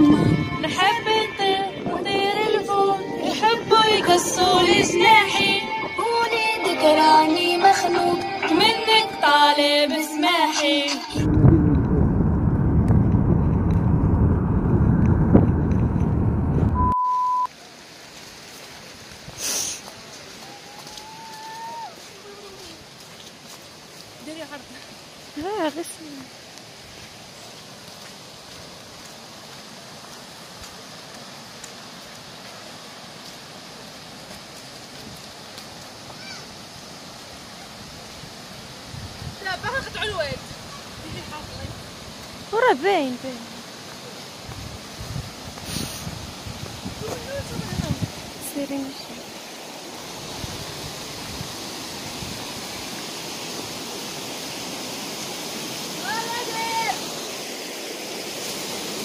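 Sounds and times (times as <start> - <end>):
stream running over rocks: 17.5 - 59.0.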